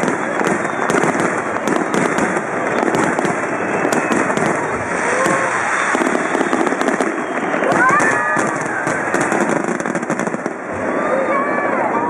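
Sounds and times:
crackles and pops: 0.0 - 10.6
firework shells bursting: 0.0 - 10.7.

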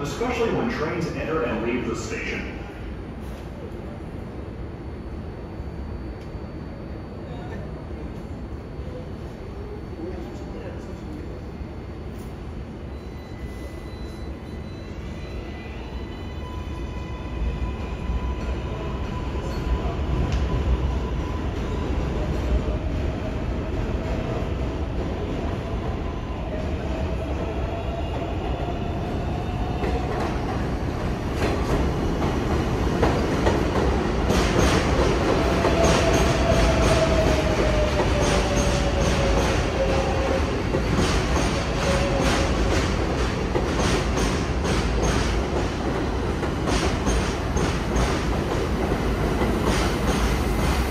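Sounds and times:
subway train rumbling and whining: 0.0 - 50.9
train wheels clacking over rail joints: 40.8 - 50.8.

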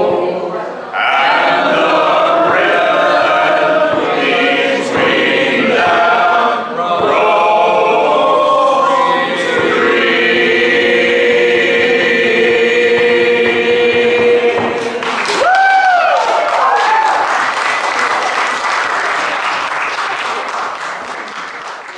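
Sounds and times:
voices singing in harmony: 0.0 - 15.3.

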